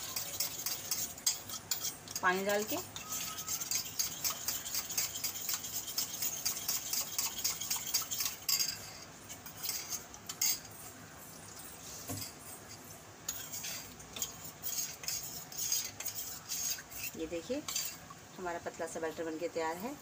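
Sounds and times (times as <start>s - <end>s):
metal spoon clinking in bowl: 0.0s - 8.9s.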